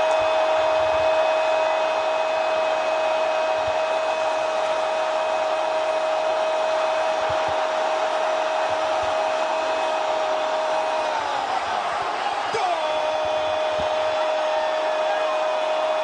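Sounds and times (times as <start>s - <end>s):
stadium crowd cheering: 0.0s - 16.0s.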